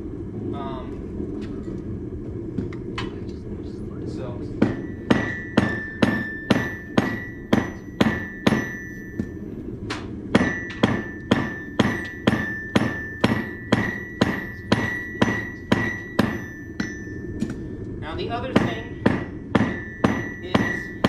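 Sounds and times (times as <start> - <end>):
hammer striking anvil: 4.6 - 17.6, 18.5 - 21.0.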